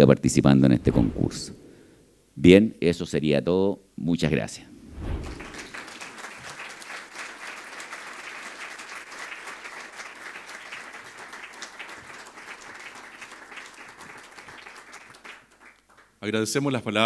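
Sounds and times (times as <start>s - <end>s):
audience applauding: 5.2s - 16.1s.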